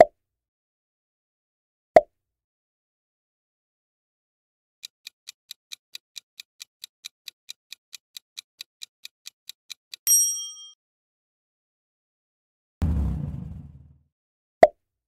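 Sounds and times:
bell-like ding: 0:10.1 - 0:10.8.

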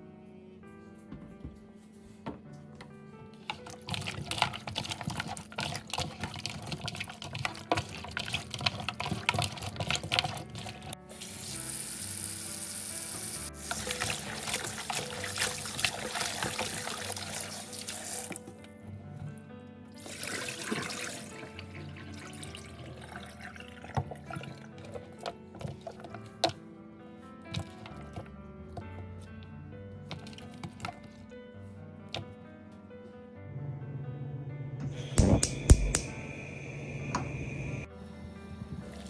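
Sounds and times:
wet squelches and clatters: 0:03.4 - 0:11.0, 0:24.0 - 0:26.6.

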